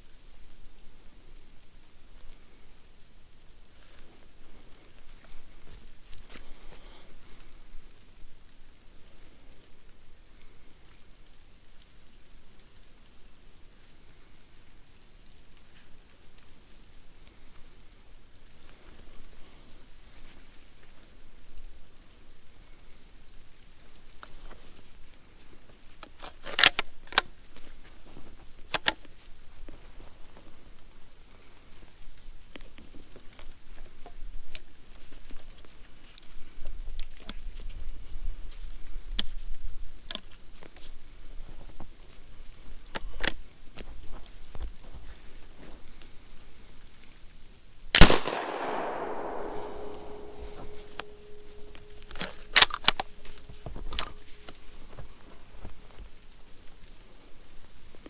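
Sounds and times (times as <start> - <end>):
shuffling footsteps in snow: 3.5 - 9.7, 27.4 - 47.3
shotgun handling clicks: 26.1 - 27.3, 47.9 - 54.6
faint metallic ring: 49.2 - 55.4.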